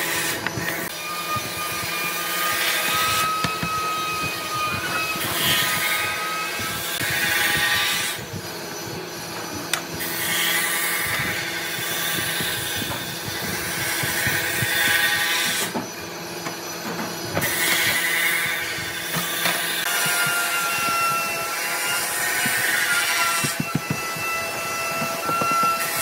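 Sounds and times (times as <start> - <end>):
wooden slats knocking and rubbing: 15.5 - 26.0.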